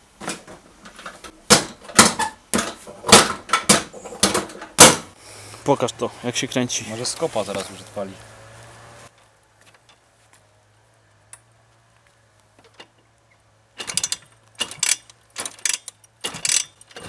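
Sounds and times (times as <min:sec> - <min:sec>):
kickstarter ratcheting: 0:13.8 - 0:17.0.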